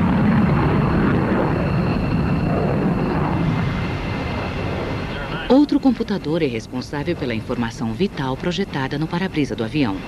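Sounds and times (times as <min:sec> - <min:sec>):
fighter jet afterburner roar: 0:00.0 - 0:06.2.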